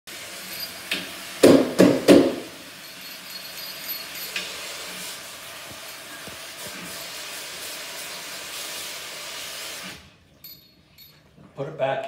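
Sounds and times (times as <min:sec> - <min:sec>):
strainer knocking against sink: 0:01.4 - 0:02.6.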